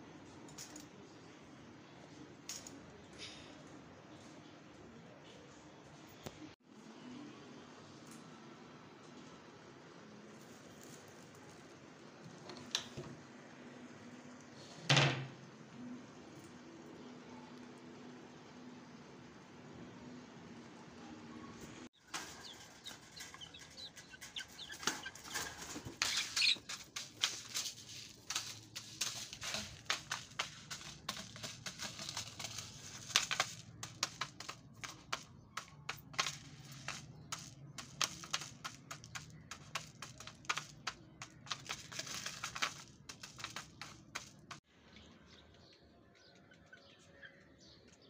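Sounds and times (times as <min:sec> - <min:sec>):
beaks tapping on tile: 0:22.0 - 0:44.6.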